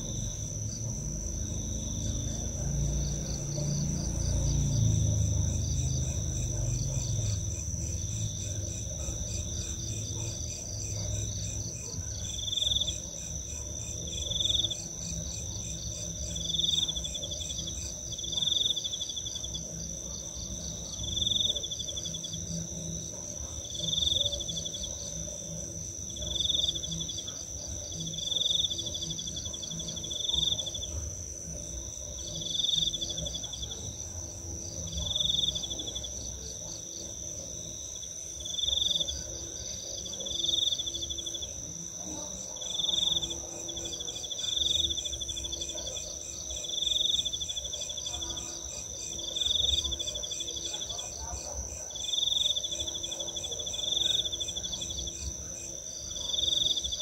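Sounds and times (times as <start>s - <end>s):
insect buzzy pulsed calls: 0.0s - 50.9s
crickets trilling: 0.0s - 57.0s.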